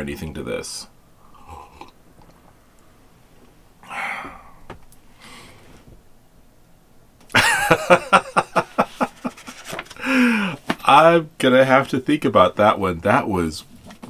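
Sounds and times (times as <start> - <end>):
soft breathy sound: 3.8 - 6.0
man laughing: 7.3 - 10.6.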